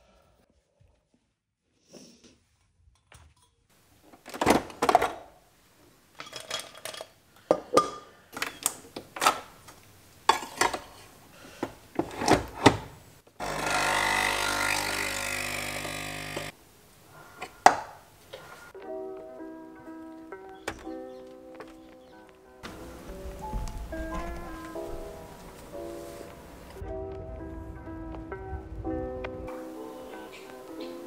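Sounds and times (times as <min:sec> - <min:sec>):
clinks and knocks of dishes: 0:06.2 - 0:08.2, 0:10.3 - 0:11.0
coffee machine pump buzzing: 0:13.4 - 0:16.5.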